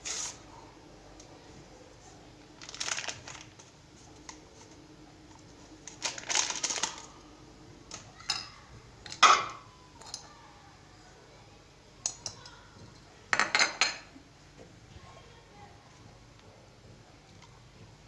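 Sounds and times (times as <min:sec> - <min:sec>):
hands rubbing flour in plastic bowl: 0:00.0 - 0:00.5.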